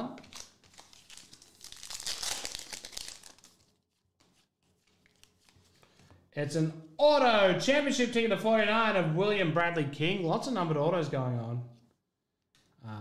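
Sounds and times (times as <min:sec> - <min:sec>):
foil wrapper crinkling and tearing: 0:00.2 - 0:04.0.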